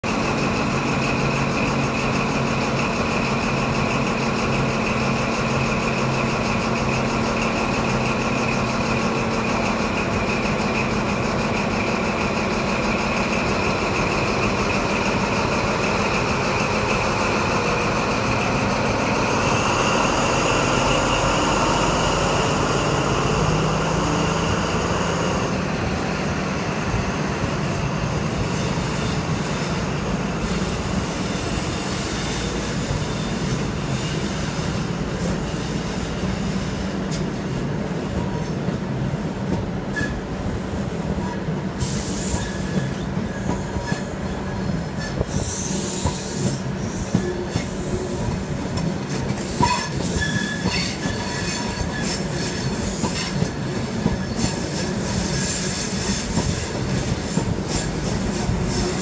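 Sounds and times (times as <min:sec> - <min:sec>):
diesel train engine whining: 0:00.0 - 0:59.0.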